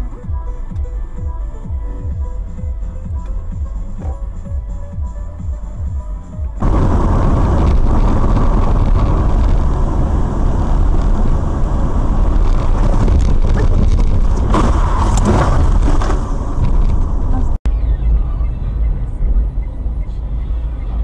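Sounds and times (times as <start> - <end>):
car engine and tyre noise: 0.0 - 21.0
rough road noise burst: 6.5 - 21.0.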